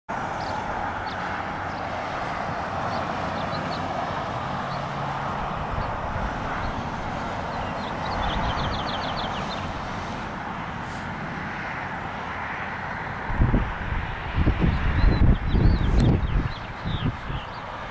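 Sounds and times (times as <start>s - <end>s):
outdoor background rush: 0.1s - 17.9s.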